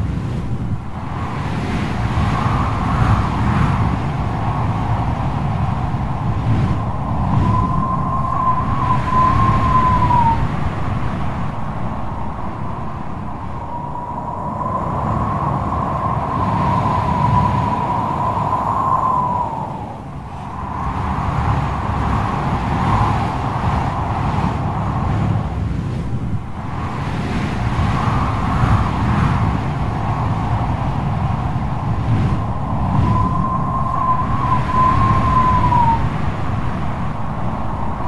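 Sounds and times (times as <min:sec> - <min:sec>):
heavy sea surf: 0:00.0 - 0:38.0
wind: 0:00.0 - 0:38.0
thin wavering whine: 0:05.6 - 0:10.6, 0:11.3 - 0:24.7, 0:30.0 - 0:36.1.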